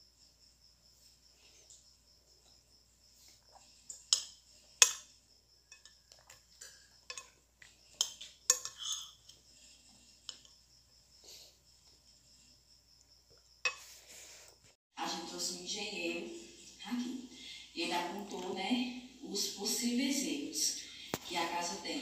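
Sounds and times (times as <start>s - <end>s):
crickets chirping: 0.0s - 22.0s
cutlery clinking against a dish: 5.7s - 7.4s, 8.0s - 9.4s.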